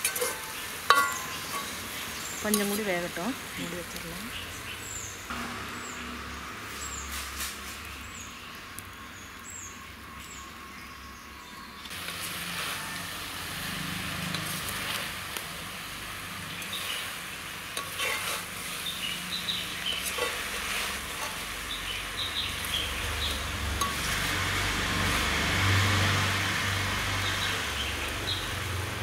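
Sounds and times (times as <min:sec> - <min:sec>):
metal ladle scraping and stirring: 0:00.0 - 0:03.0, 0:12.0 - 0:15.4, 0:16.6 - 0:25.2
vegetables sizzling in oil: 0:00.0 - 0:10.6, 0:11.8 - 0:29.0.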